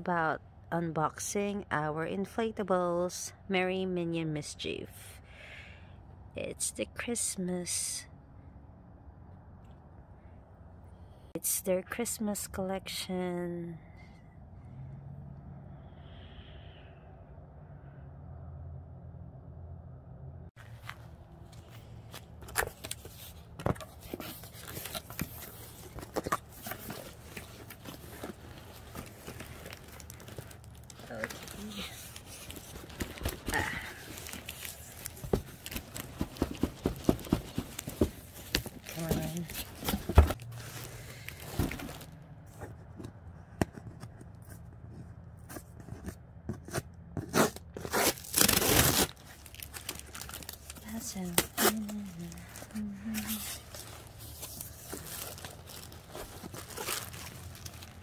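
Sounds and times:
cardboard box scraping: 22.5 - 42.8
fingernails scratching packing tape: 46.7 - 49.2.

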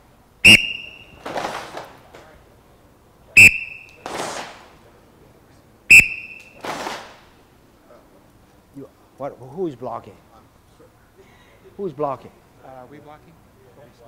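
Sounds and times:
whistle blasts: 0.4 - 1.4, 3.4 - 4.2, 5.9 - 6.9.

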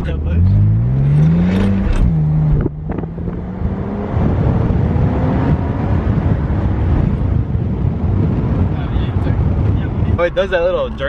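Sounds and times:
car engine hum: 0.0 - 11.0
road and wind rumble: 0.0 - 11.0.

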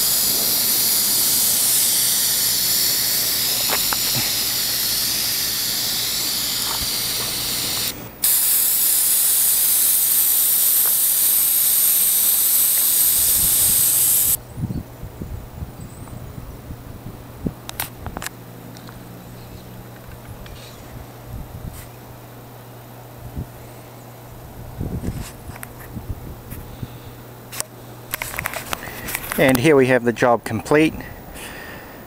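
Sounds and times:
spray wand hissing: 0.0 - 14.4.

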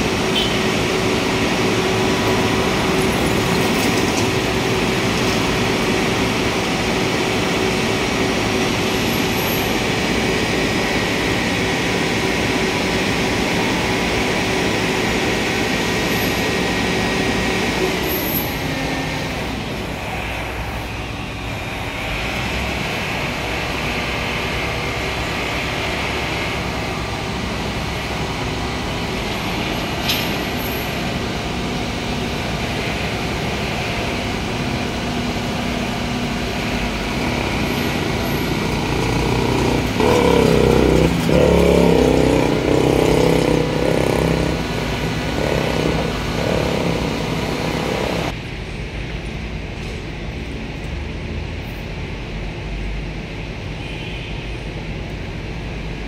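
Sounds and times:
passing vehicles: 0.0 - 56.0
loud vehicle passing close: 36.7 - 48.4.

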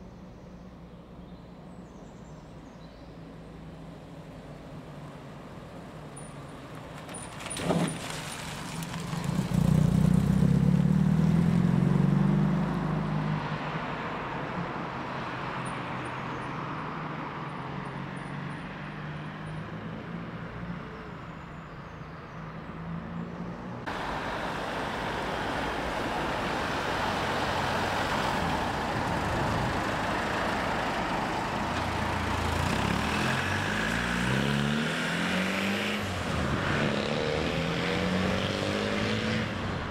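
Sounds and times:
sports car passing: 4.8 - 15.7, 22.8 - 39.9
car engine revving: 23.9 - 39.9.

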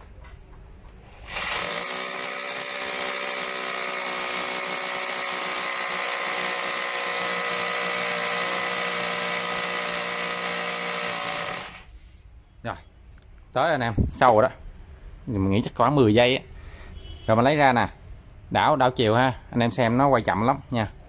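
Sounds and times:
rotary hammer drilling concrete: 1.2 - 11.9.

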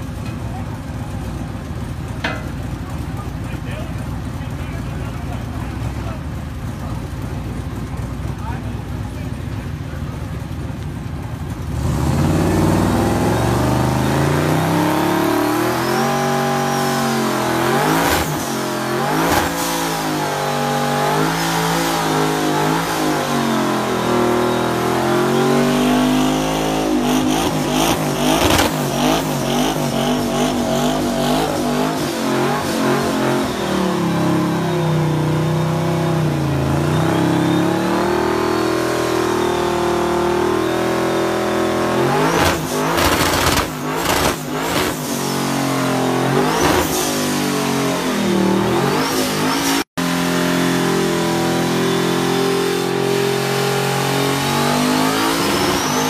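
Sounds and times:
engine revving hard: 11.7 - 56.0
sharp engine cracks: 42.4 - 45.0.

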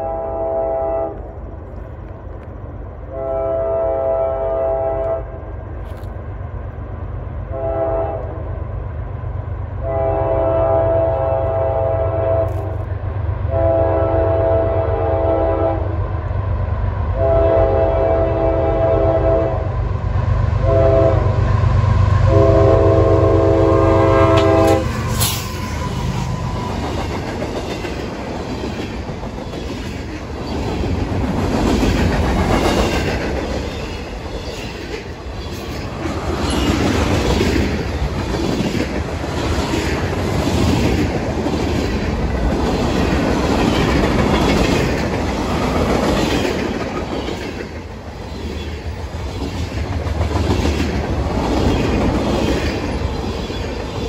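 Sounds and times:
locomotive air horn: 0.0 - 1.2, 3.1 - 5.3, 7.5 - 8.4, 9.8 - 12.8, 13.5 - 16.0, 17.2 - 19.7, 20.6 - 21.4, 22.3 - 26.6
freight cars rumbling past: 19.6 - 54.0
wheels clacking over rail joints: 24.3 - 54.0.

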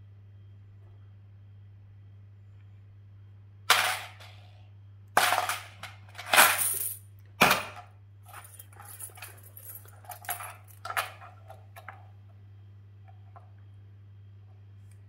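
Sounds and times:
coins clattering in plastic bowl: 3.7 - 4.4, 5.2 - 12.0.

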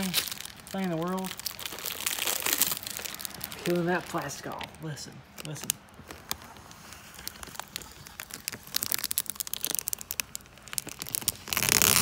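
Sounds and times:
plastic film tearing rip: 0.0 - 3.9, 7.1 - 12.0
plastic film crackling: 0.0 - 12.0.

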